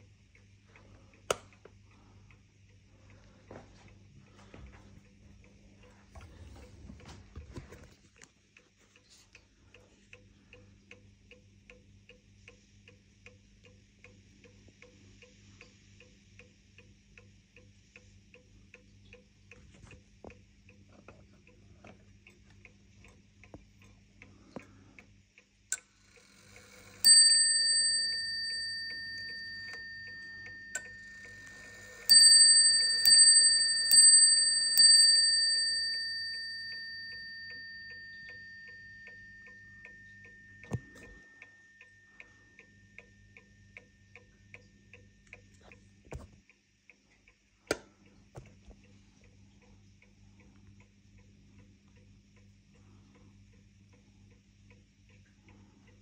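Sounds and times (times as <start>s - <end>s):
clock ticking: 20.3s - 48.2s
clock striking ringing strokes: 26.5s - 43.4s.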